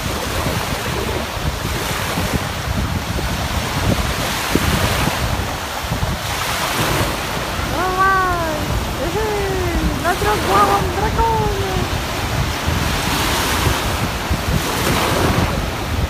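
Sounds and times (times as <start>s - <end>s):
waves breaking in surf: 0.0s - 16.0s
wind buffeting microphone: 0.0s - 16.0s.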